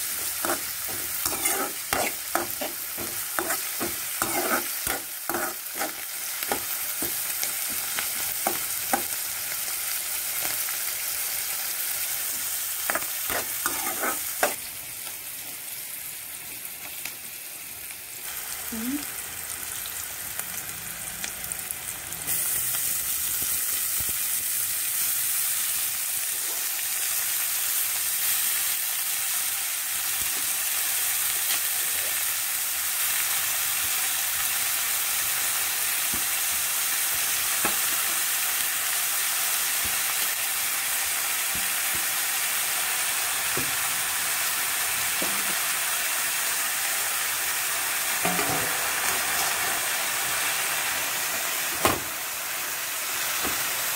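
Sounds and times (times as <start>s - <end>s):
onions frying in oil: 0.0s - 53.9s
metal spatula scraping pan: 0.2s - 7.2s, 12.9s - 14.6s.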